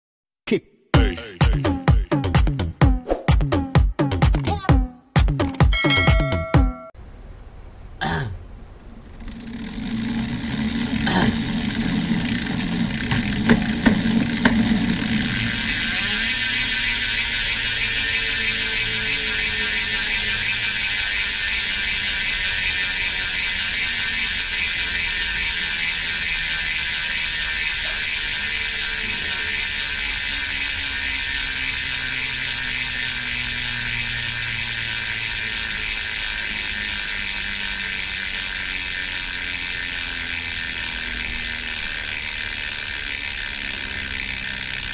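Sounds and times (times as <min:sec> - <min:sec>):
low hum: 0:05.8 - 0:44.9
bicycle hub ratchet ticking: 0:09.0 - 0:44.9
knocks: 0:13.1 - 0:15.0.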